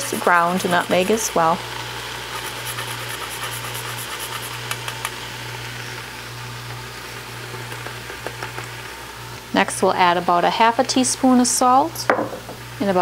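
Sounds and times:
vegetables sizzling: 0.0 - 11.9
steady low hum: 0.0 - 13.0
grater scraping: 2.3 - 5.0.

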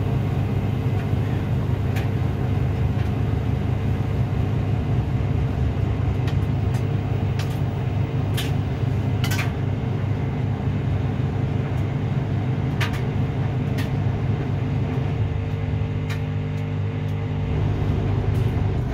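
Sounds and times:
washing machine spinning: 0.0 - 18.9.

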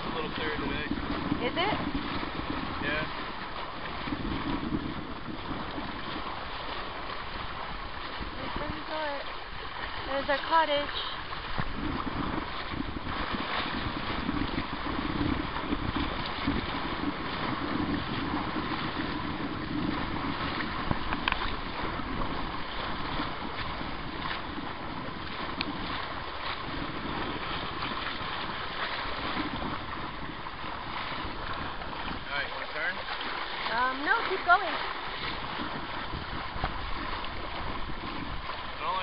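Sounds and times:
water washing past hull: 0.0 - 39.0
wind buffeting microphone: 0.0 - 39.0
faint clicks: 21.1 - 21.5.

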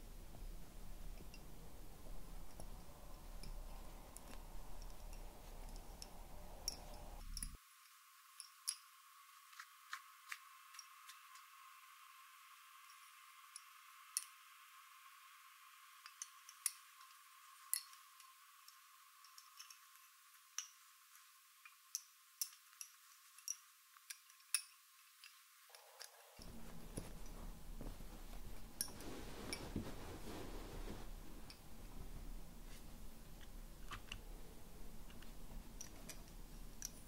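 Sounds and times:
soft rustling: 0.0 - 7.6, 22.5 - 37.0.

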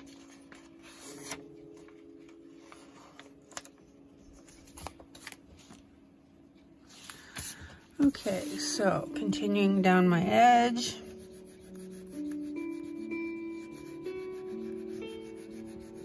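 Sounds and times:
paper rustling: 0.0 - 5.9.

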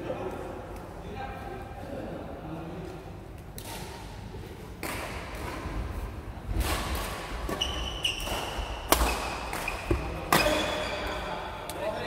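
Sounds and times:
rackets striking shuttlecock: 6.5 - 10.9
sneakers squeaking on wooden floor: 7.5 - 11.3.

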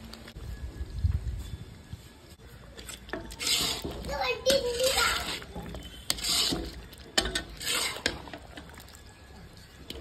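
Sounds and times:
spatula scraping and clinking on pan: 2.8 - 10.0.

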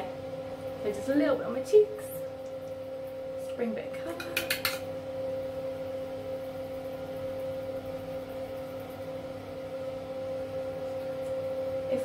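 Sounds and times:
sharp clicks: 4.2 - 4.8.

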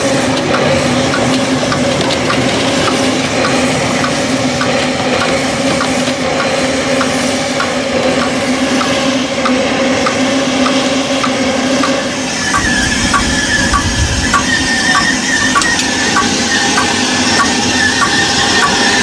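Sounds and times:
steam locomotive hissing: 0.0 - 19.0
wavering high tone: 10.1 - 19.0.

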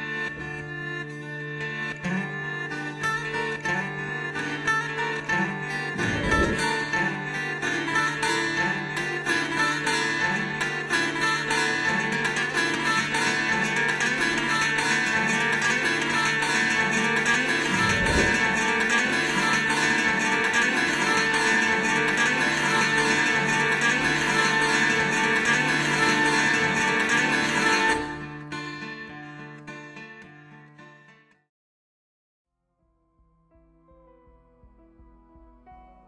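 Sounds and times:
strummed acoustic guitar: 0.0 - 31.4
brief low thump: 6.0 - 6.8, 17.7 - 18.6.

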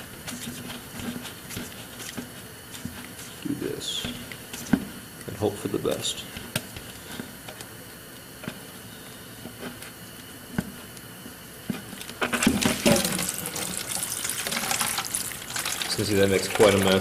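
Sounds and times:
coolant splashing into plastic jug: 12.3 - 17.0.

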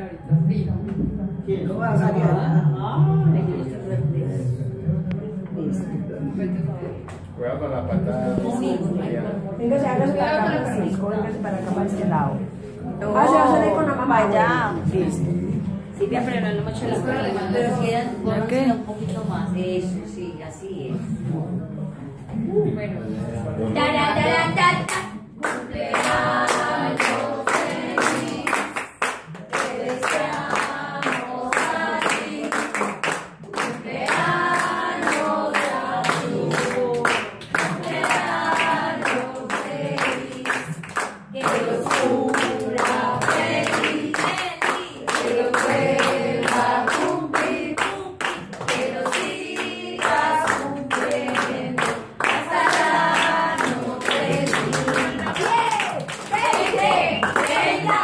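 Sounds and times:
group singing birthday song: 6.6 - 21.4, 23.2 - 58.0
people clapping in rhythm: 24.6 - 58.0.

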